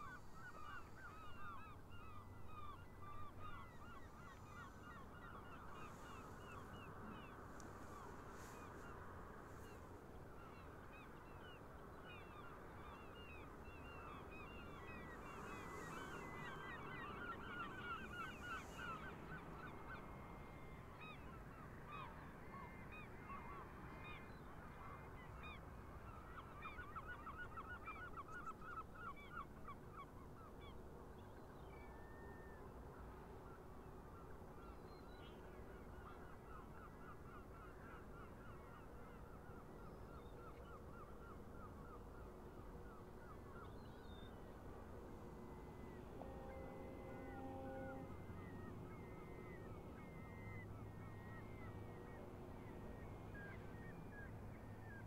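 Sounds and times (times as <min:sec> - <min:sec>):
flock of geese honking: 0:46.2 - 0:48.8.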